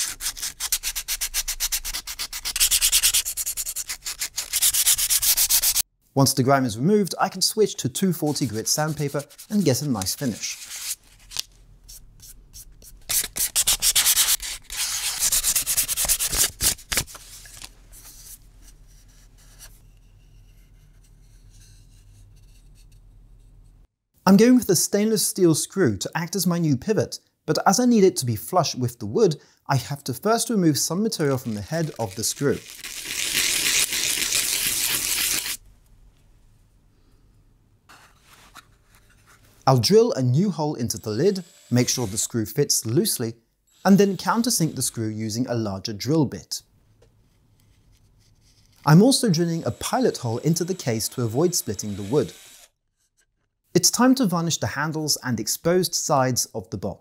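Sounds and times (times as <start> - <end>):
sandpaper scraping wood: 0.0 - 5.9, 8.1 - 18.4, 31.1 - 35.6, 40.8 - 42.8, 43.8 - 45.0, 48.7 - 52.6.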